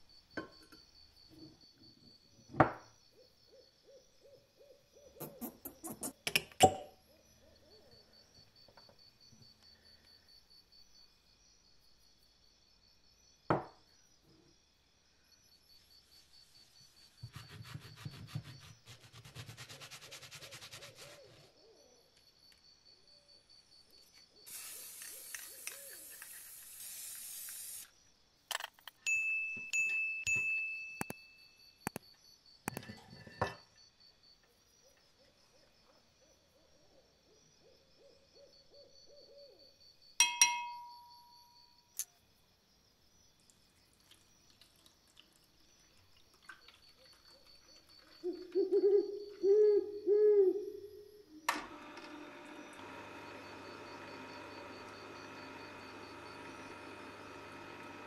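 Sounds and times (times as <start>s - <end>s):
aerosol can spraying: 24.5s - 27.9s
sharp ding: 29.1s - 31.3s, 40.2s - 41.7s
sharpener motor running: 51.7s - 58.0s.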